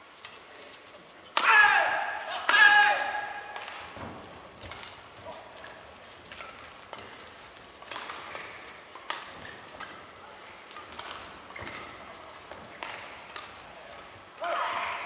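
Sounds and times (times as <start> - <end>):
rackets hitting shuttlecock: 1.3 - 15.0
shoes squeaking on court: 11.1 - 12.7.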